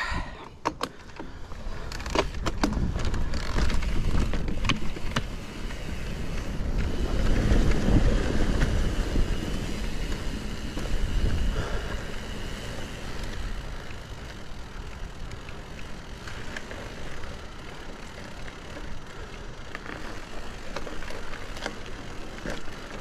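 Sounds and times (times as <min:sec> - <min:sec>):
bike clicks and rattles: 0:00.0 - 0:23.0
bike tyre rumble: 0:00.0 - 0:23.0.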